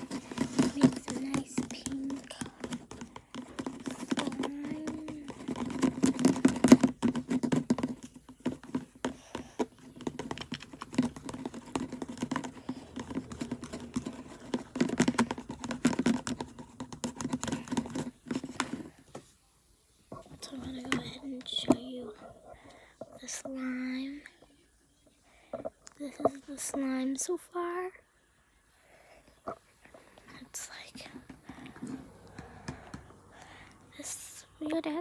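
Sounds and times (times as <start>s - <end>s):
slime stirred with plastic spoon: 0.0s - 19.1s.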